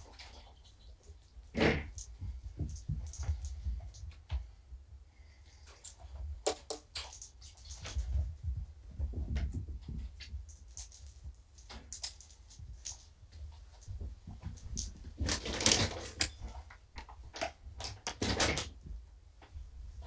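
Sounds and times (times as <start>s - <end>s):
light clicks taps and rustles: 0.0s - 4.6s, 5.6s - 19.6s.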